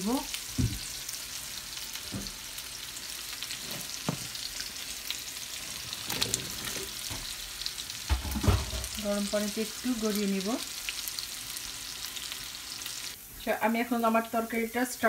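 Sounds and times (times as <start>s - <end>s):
hot pan sizzling: 0.0s - 15.0s
kitchenware knocking: 8.1s - 9.0s.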